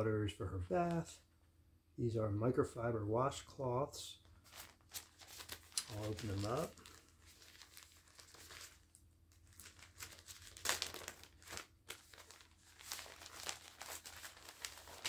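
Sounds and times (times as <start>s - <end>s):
plastic packaging crinkling and tearing: 4.4s - 15.0s.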